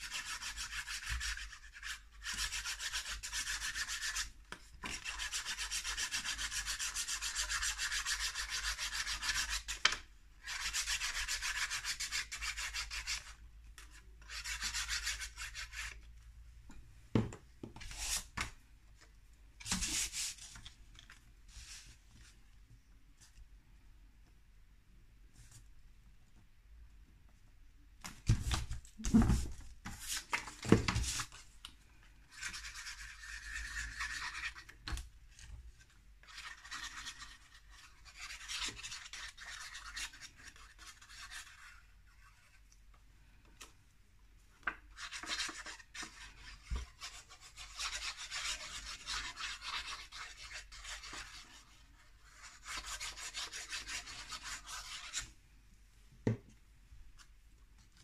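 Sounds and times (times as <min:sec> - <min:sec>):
scratchy paper rubbing: 0:32.3 - 0:34.7, 0:36.2 - 0:42.6, 0:45.0 - 0:55.2.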